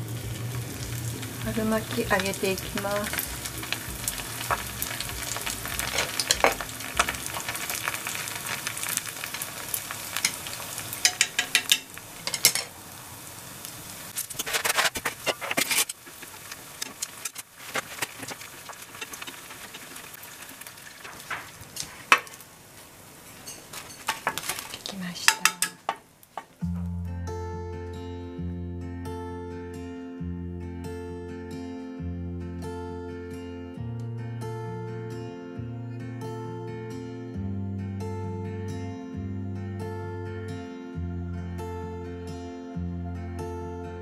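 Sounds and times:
food deep-frying in hot oil: 0:00.0 - 0:26.7
oil popping and crackling: 0:00.0 - 0:26.9.

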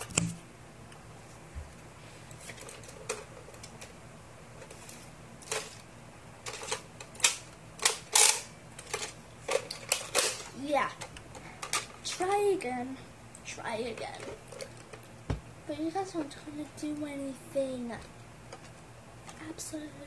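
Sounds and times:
toy blaster plastic clacks: 0:06.5 - 0:11.9.

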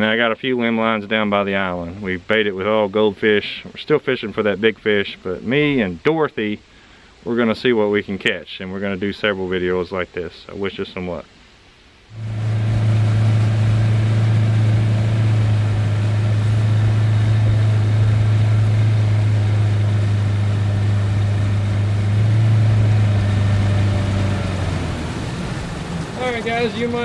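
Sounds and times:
outboard motor running: 0:12.1 - 0:27.0.

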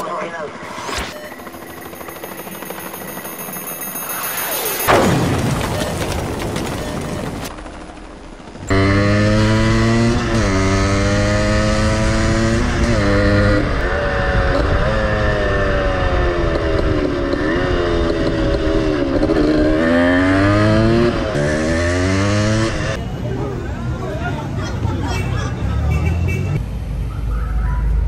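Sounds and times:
motorcycle engine accelerating: 0:08.3 - 0:23.0.

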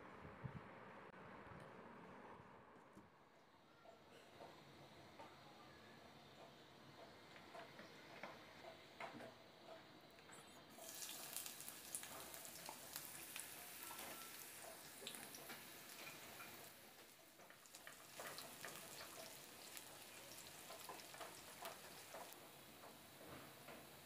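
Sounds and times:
oil popping: 0:10.7 - 0:22.4
onions sizzling in hot oil: 0:10.7 - 0:24.0.

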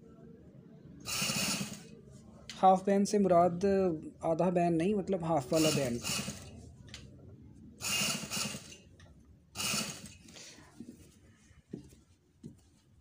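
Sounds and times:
sewing machine stitching: 0:01.1 - 0:01.9, 0:05.6 - 0:06.5, 0:07.8 - 0:08.8, 0:09.6 - 0:10.3.

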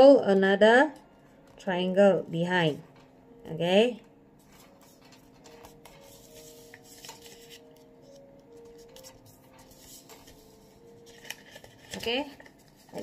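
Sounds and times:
paper rustling being folded: 0:04.4 - 0:13.0.

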